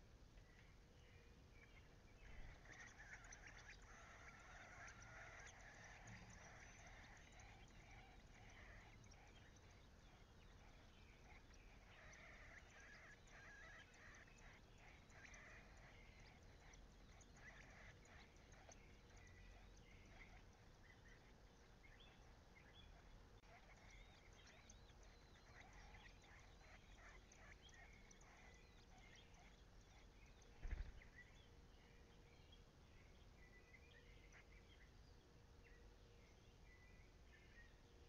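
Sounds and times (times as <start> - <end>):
nestlings chirping high: 1.7 - 32.3.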